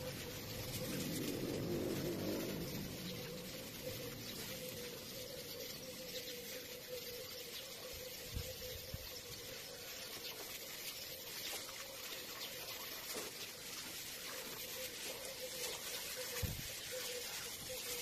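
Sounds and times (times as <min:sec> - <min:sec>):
faint steady hum: 0:00.0 - 0:08.4
water from hose splashing: 0:00.0 - 0:18.0.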